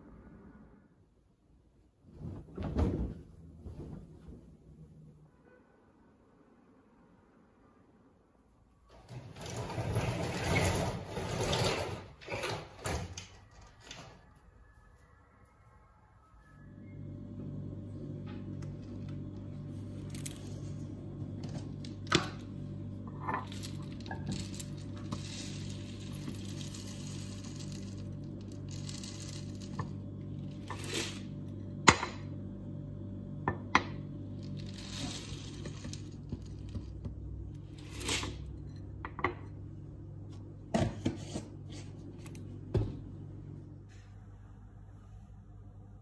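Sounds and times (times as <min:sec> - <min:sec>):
oats rustling and pouring: 0:19.6 - 0:22.0, 0:23.1 - 0:31.4, 0:34.4 - 0:37.0.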